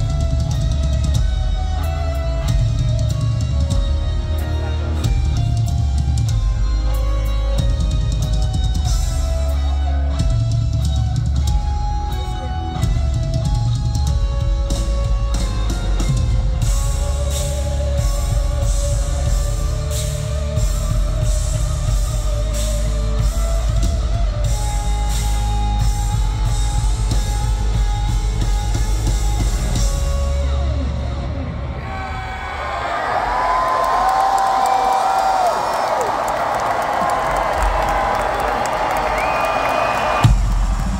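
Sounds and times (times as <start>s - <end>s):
drum kit pounding: 0.0s - 31.5s, 36.2s - 40.9s
electric guitars holding notes: 0.0s - 31.8s.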